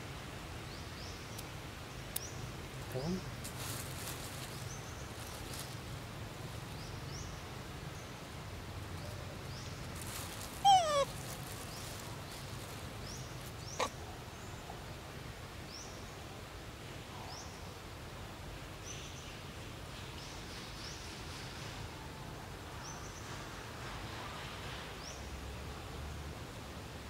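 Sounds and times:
faint high bird chirps: 10.6s - 11.1s
macaque call: 10.6s - 11.2s, 13.6s - 14.0s.

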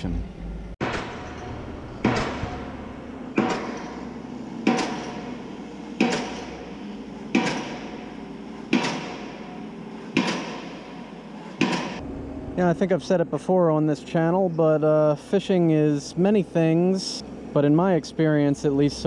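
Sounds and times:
pile driver striking: 0.8s - 12.0s.

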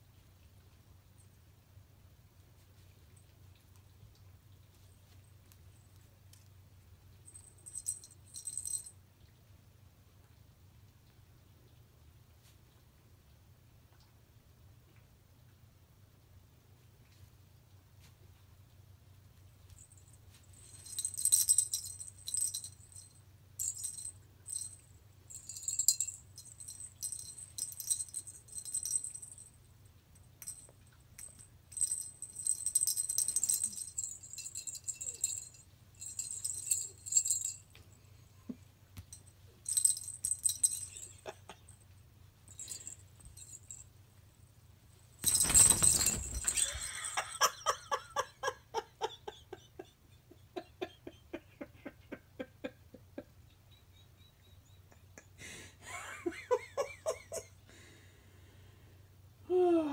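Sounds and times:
jingle bell toy jingling: 7.3s - 8.9s, 19.8s - 29.6s, 30.2s - 37.8s, 39.0s - 41.4s, 42.5s - 43.9s, 45.1s - 48.2s.

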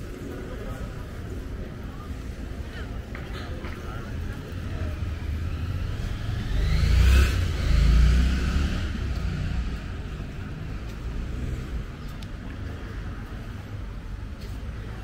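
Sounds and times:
outdoor background noise: 0.0s - 15.0s
car passing: 4.3s - 12.0s.

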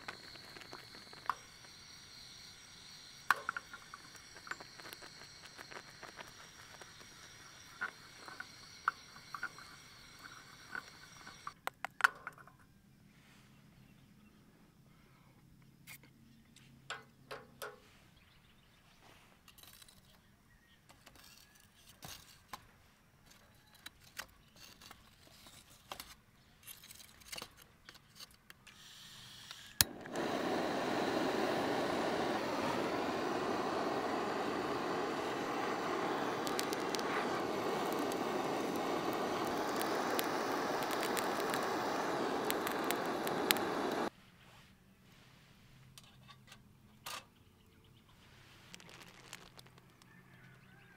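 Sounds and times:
torch flame hissing: 0.0s - 11.6s, 29.6s - 44.1s
torch igniter click: 0.0s - 11.6s, 29.5s - 44.1s.

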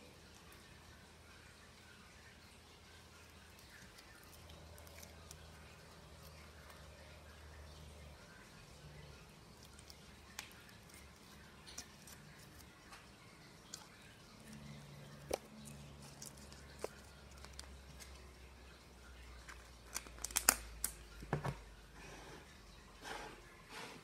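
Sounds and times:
slime clicking and popping: 20.0s - 21.0s.

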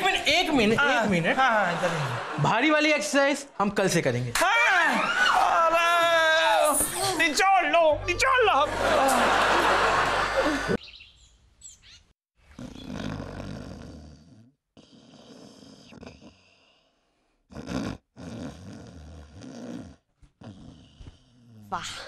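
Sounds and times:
person snoring: 12.5s - 22.0s.

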